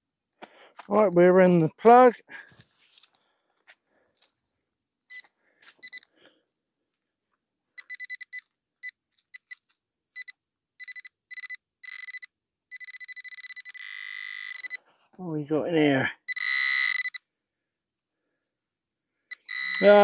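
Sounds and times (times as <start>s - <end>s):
metal detector beeping: 5.1s - 6.1s, 7.8s - 9.6s, 10.2s - 14.8s, 16.3s - 17.2s, 19.3s - 20.0s.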